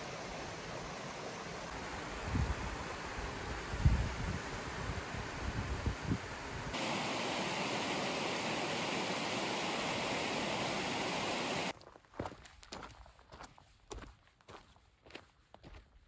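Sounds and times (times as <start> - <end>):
stream cascading over rocks: 0.0 - 11.7
footsteps on rocky trail: 11.7 - 16.0.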